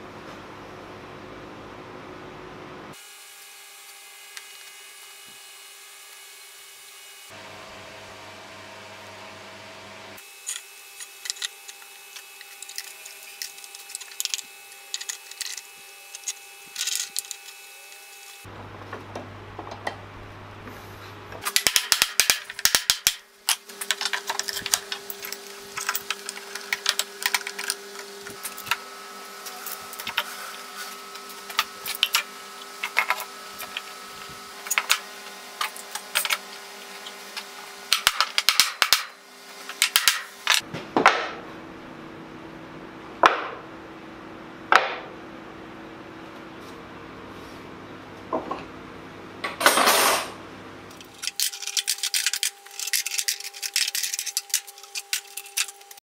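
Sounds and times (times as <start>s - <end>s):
metal clamps clicking and clanking: 10.4s - 17.6s, 21.4s - 28.8s, 50.9s - 56.0s.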